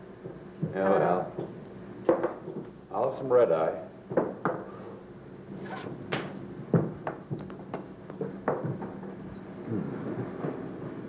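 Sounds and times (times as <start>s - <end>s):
knocks and thumps: 6.1s - 9.1s.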